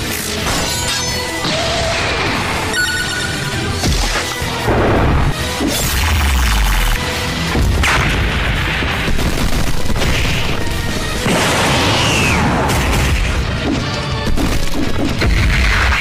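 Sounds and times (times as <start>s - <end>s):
background music: 0.0s - 16.0s
cartoon blasts and impacts: 3.8s - 16.0s.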